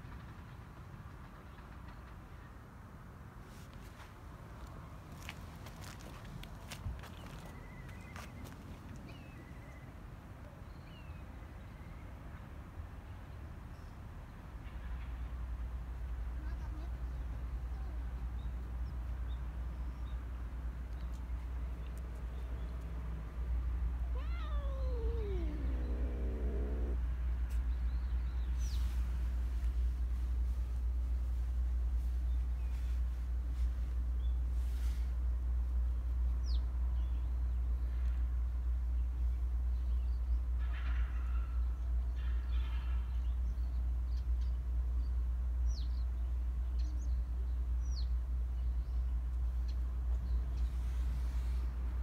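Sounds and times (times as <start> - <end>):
steady low rumble: 23.5 - 28.4
cat meowing: 24.1 - 27.0.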